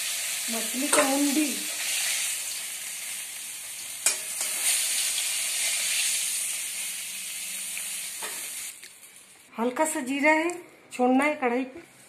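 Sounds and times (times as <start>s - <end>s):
food sizzling in hot oil: 0.0s - 9.3s
spatula clinking against pan: 4.0s - 4.6s.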